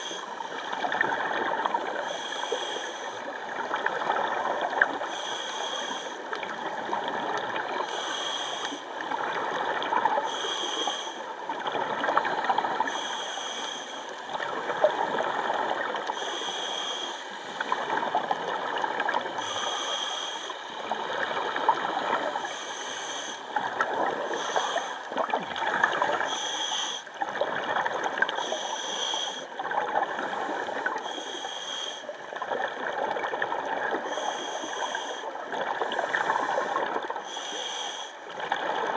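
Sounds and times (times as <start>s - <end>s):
underwater regulator bubbling: 23.5s - 26.4s.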